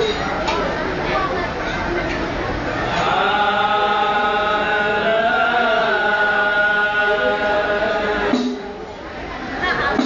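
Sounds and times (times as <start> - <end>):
men chanting: 2.8 - 8.8.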